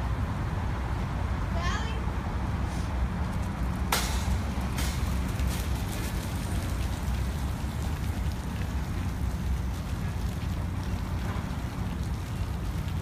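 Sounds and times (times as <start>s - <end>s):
sprinkler water spraying: 2.7s - 13.0s.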